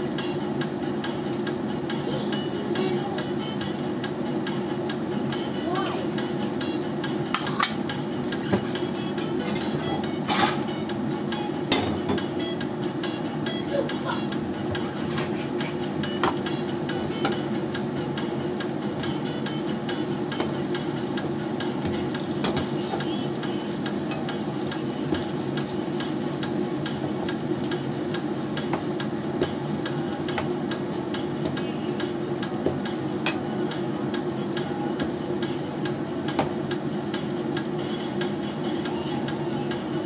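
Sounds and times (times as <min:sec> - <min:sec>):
oil sizzling and popping: 0:00.0 - 0:02.0, 0:14.2 - 0:38.4
metal spoon against pan: 0:33.2 - 0:33.5.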